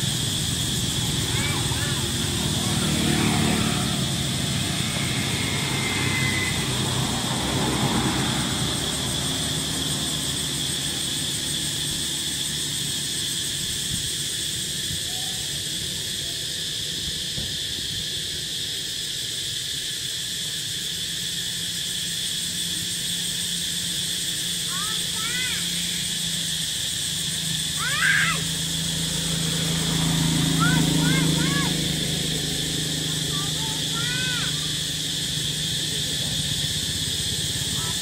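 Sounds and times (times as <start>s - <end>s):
high-pitched drone: 0.0s - 12.5s.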